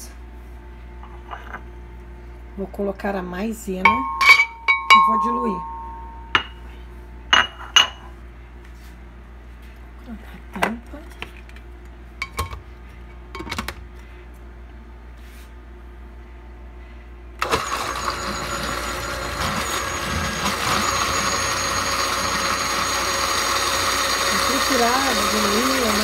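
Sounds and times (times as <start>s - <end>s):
blender running: 17.4s - 26.0s.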